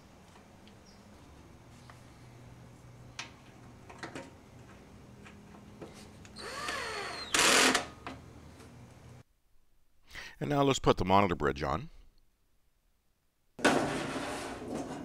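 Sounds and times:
power screwdriver whirring: 0:06.4 - 0:07.9.

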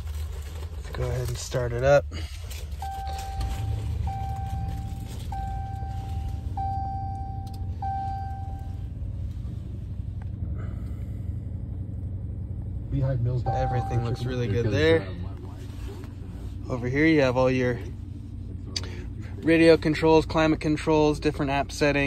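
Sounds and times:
engine idling: 0:00.0 - 0:22.0
dashboard chime: 0:06.6 - 0:08.7, 0:13.4 - 0:14.6.

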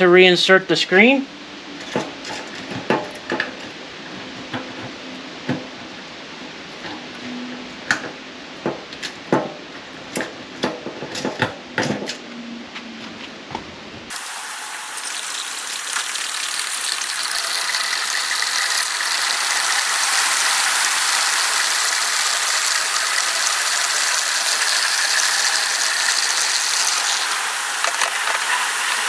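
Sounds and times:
gasoline pouring into fuel tank: 0:14.1 - 0:27.9.

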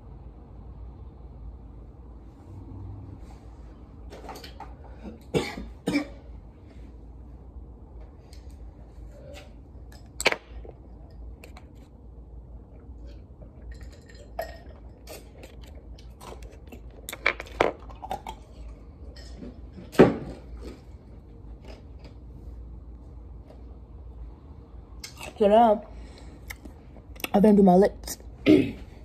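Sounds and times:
steady low hum: 0:00.0 - 0:29.0
small objects clicking and knocking: 0:13.7 - 0:18.4.

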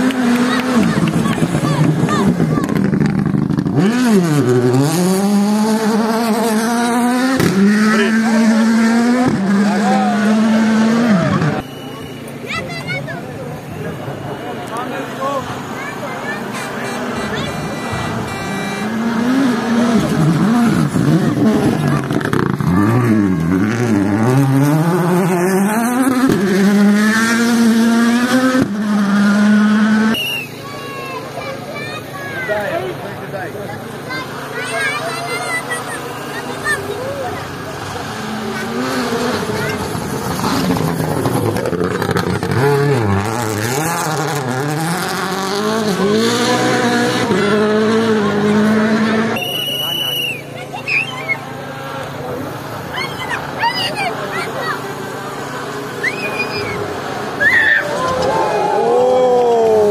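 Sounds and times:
rally car engine revving: 0:00.0 - 0:12.2, 0:13.1 - 0:59.9.

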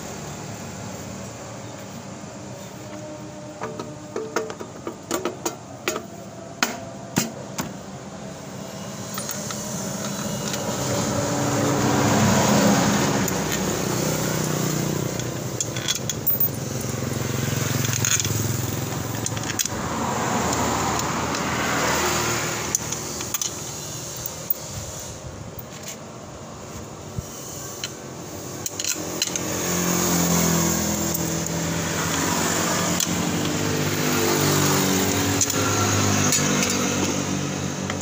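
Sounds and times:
vehicles passing: 0:00.0 - 0:38.0
sharp metal clicks: 0:13.2 - 0:25.0, 0:27.6 - 0:38.0.

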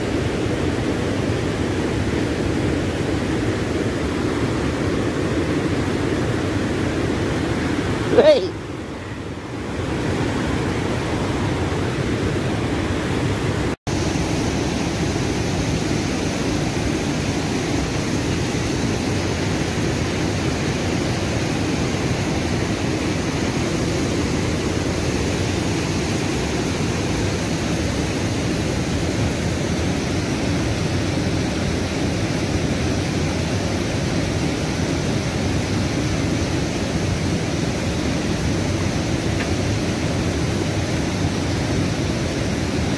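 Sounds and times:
river rushing over rapids: 0:00.0 - 0:42.9.

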